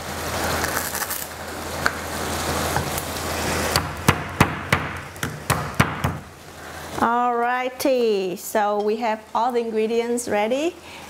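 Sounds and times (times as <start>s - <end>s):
knife chopping on wooden board: 3.8s - 6.3s.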